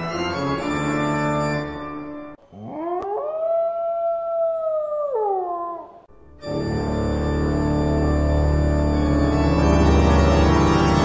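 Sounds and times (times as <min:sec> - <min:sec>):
organ chords: 0:00.0 - 0:02.4, 0:06.3 - 0:11.0
wolf howling: 0:02.5 - 0:06.1.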